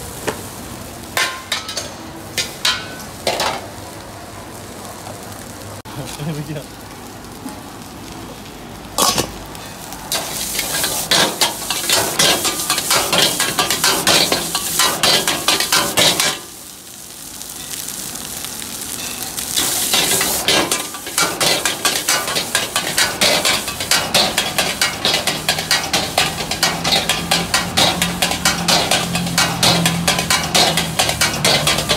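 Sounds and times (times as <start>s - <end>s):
rice sizzling: 0.0s - 31.9s
metal ladle scraping a wok: 10.1s - 16.4s, 19.1s - 31.9s.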